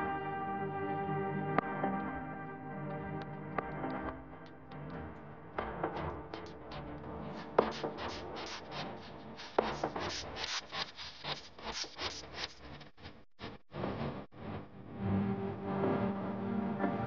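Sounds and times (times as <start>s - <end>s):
quiet background music: 0.0s - 9.0s, 13.8s - 17.0s
scratchy percussive strokes: 5.6s - 14.7s.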